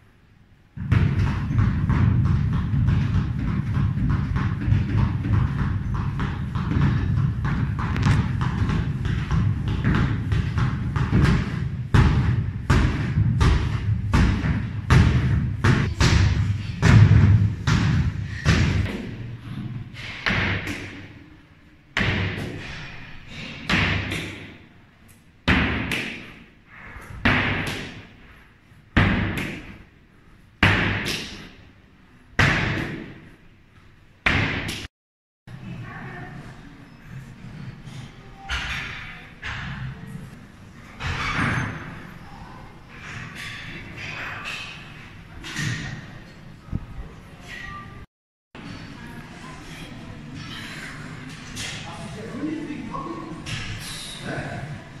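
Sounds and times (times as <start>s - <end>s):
medicine ball striking hard: 0.8s - 19.2s, 20.0s - 21.0s, 22.0s - 22.8s, 23.6s - 24.6s, 25.5s - 26.4s, 27.2s - 28.1s, 29.0s - 29.8s, 30.6s - 31.6s, 32.4s - 33.3s, 34.2s - 34.9s.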